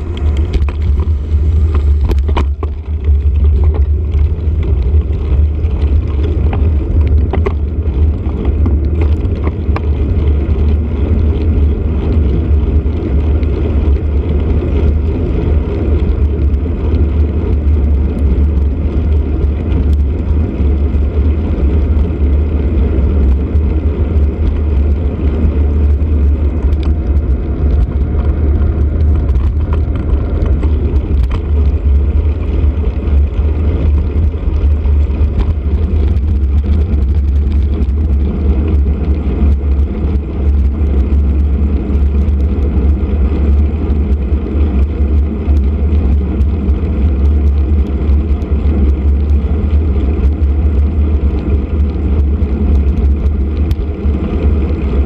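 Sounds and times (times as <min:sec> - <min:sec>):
knocks and rattles: 0:00.0 - 0:10.0
wind and road noise rumble: 0:00.0 - 0:55.0.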